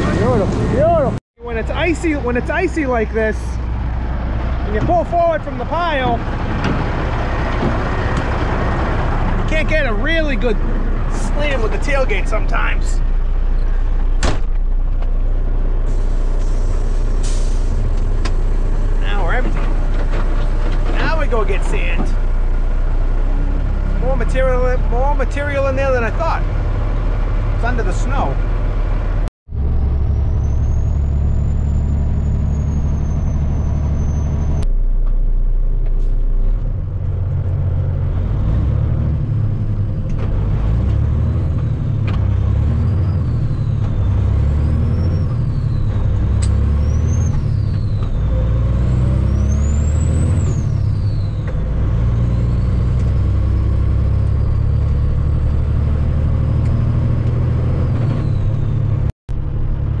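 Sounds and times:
diesel truck engine revving: 0:00.0 - 0:34.8, 0:35.9 - 1:00.0.

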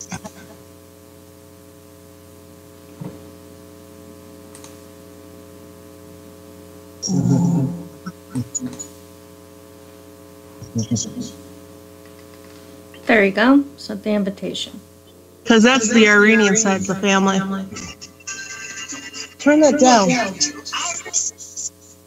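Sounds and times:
steady electrical hum: 0:00.0 - 0:22.0
faint clicks: 0:04.5 - 0:04.8.

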